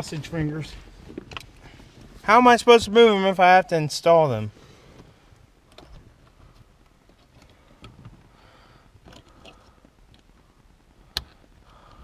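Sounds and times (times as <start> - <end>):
faint plastic clicks and rustling: 4.9 - 12.0.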